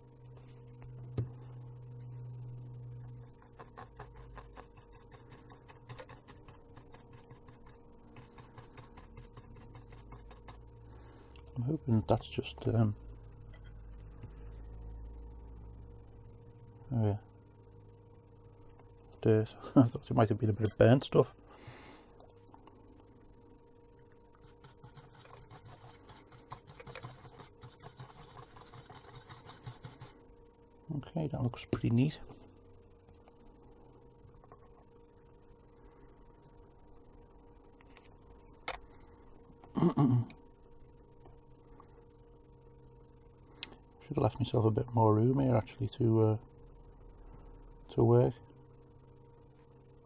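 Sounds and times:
low electrical hum: 0.0 - 50.0
small tool clicking and scratching: 3.1 - 10.7, 24.4 - 30.1.

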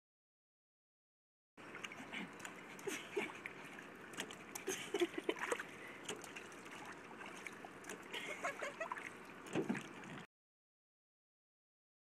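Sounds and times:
pool water splashing and dripping: 1.6 - 10.3.

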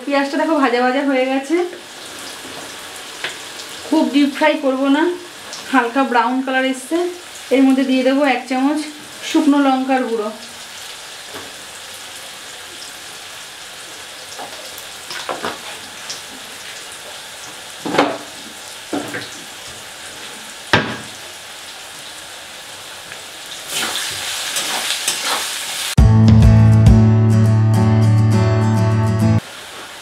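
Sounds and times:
onions sizzling in hot oil: 0.1 - 26.0, 29.4 - 30.0
spatula stirring pan: 23.7 - 25.6
acoustic guitar music: 26.0 - 29.4.

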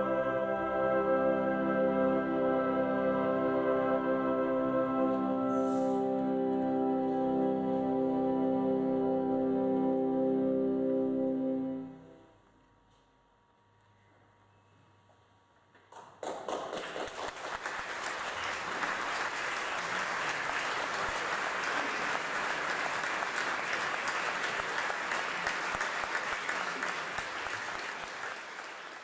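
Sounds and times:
audience applauding: 15.9 - 29.0.

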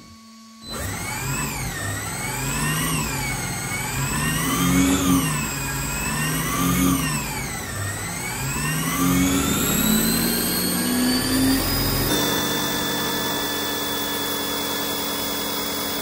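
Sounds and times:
electric toy car motor revving: 0.6 - 16.0.

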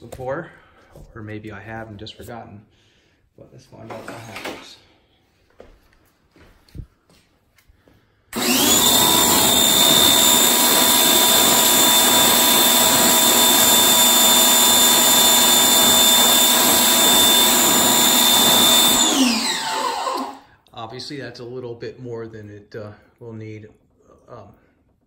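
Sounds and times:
pressure washer motor whine: 8.3 - 20.5.

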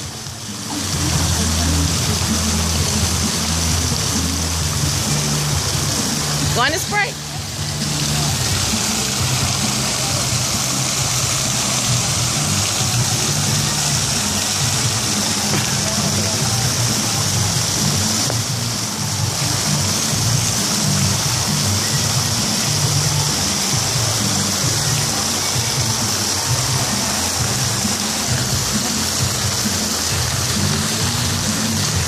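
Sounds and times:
background music with bass line: 0.0 - 32.0
fountain water rushing: 0.0 - 32.0.

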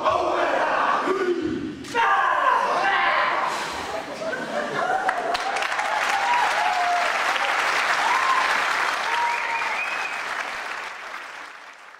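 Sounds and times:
voices cheering: 4.6 - 10.7
audience applauding: 4.8 - 11.9.

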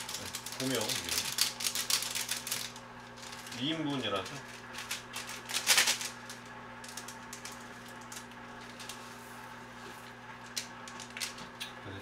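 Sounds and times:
plastic packet crinkling: 0.0 - 9.0.

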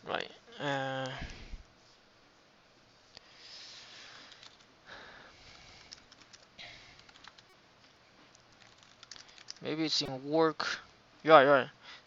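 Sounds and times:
keyboard typing: 4.3 - 4.7, 5.8 - 7.6, 8.3 - 9.7.

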